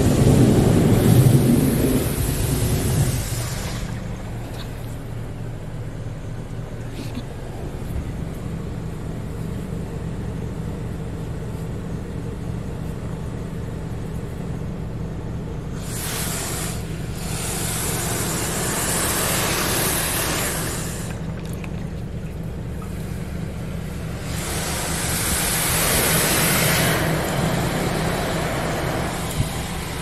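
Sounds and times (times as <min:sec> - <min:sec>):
water spray hissing on car: 0:00.0 - 0:05.6, 0:15.7 - 0:30.0
car wash machine hum: 0:00.0 - 0:30.0.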